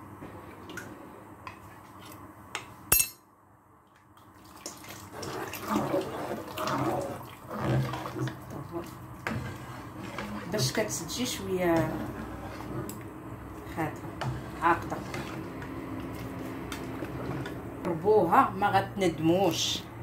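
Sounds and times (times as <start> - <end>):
sharp clink: 2.9 - 3.2.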